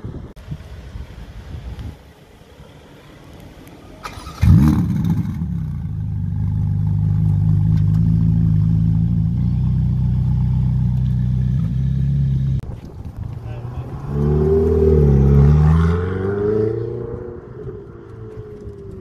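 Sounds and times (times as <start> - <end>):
car engine starting and idling: 2.1 - 19.0
engine cranking whirr: 4.0 - 5.4.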